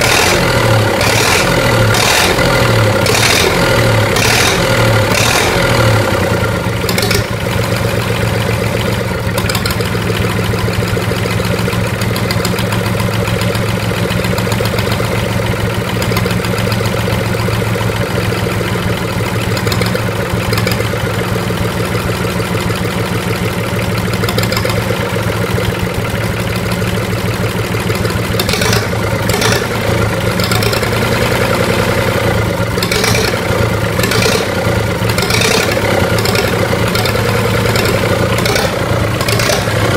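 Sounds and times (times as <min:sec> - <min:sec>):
diesel engine idling: 0:00.0 - 0:39.9.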